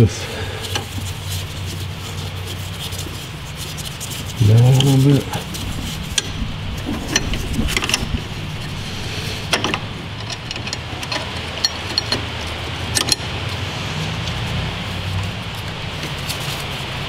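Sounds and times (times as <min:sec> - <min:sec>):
steady low hum: 0:00.0 - 0:17.0
metal parts clicking and clinking: 0:04.0 - 0:13.6.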